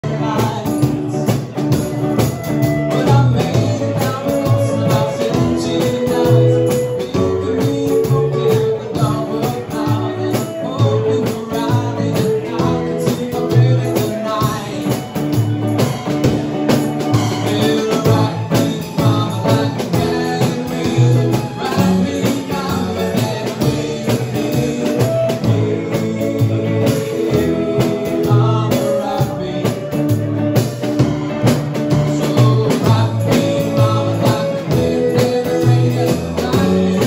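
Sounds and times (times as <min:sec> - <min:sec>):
plucked double bass: 0:00.0 - 0:37.0
strummed electric guitar: 0:00.0 - 0:37.0.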